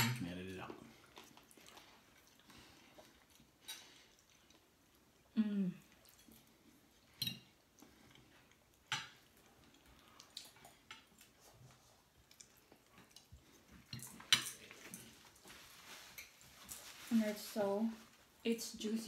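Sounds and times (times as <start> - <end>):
cutlery clinking on plates: 13.8 - 15.1.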